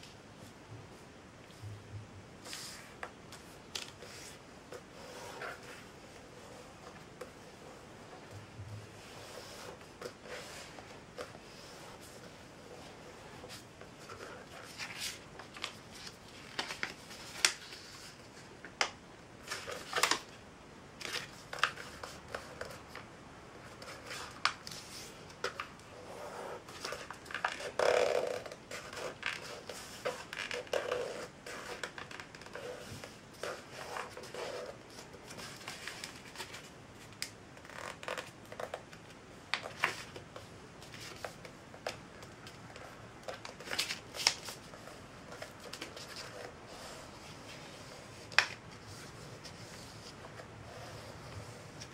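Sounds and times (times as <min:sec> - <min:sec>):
paper folding and crackling: 0:09.0 - 0:20.4, 0:21.0 - 0:23.0, 0:23.6 - 0:51.9.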